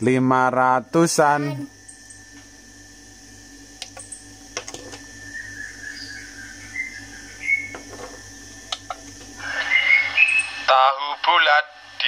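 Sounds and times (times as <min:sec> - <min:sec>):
electrical hum: 0:00.0 - 0:12.0
sharp clicks: 0:03.8 - 0:04.8
faint wavering high whistle: 0:05.1 - 0:07.7, 0:09.4 - 0:10.7.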